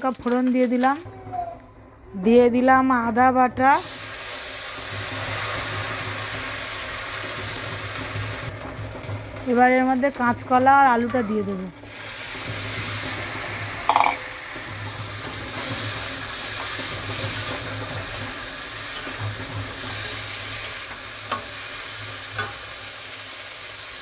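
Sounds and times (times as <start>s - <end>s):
food sizzling in hot oil: 3.7s - 24.0s.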